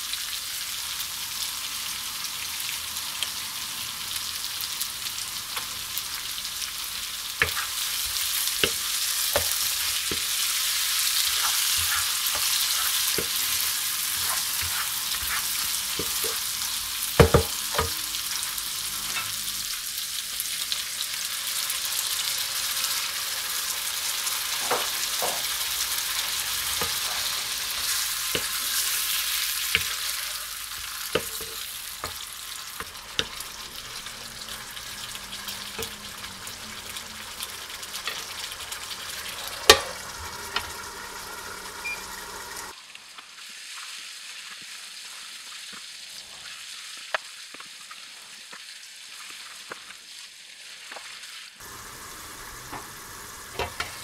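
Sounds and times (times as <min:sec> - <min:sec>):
chicken sizzling in frying pan: 0:00.0 - 0:54.0
spatula scraping a pan: 0:07.4 - 0:16.5, 0:26.6 - 0:34.5.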